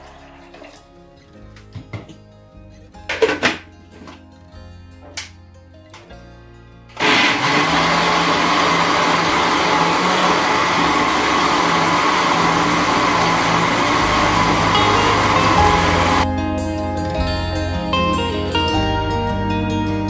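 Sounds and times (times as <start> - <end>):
blender running: 7.0 - 16.3.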